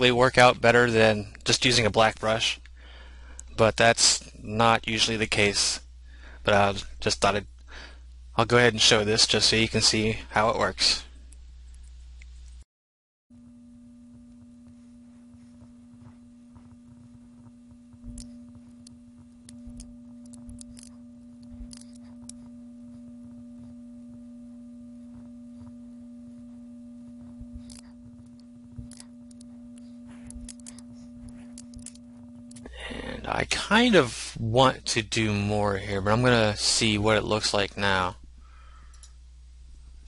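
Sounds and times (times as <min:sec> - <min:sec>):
low-pitched hum: 0:13.3 - 0:40.0
computer mouse clicks: 0:18.1 - 0:22.4, 0:27.6 - 0:29.5, 0:30.2 - 0:30.8.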